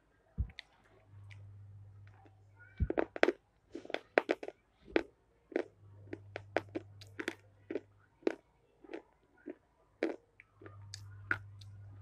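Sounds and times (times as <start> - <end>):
crisp crunching and chewing: 2.9 - 11.7.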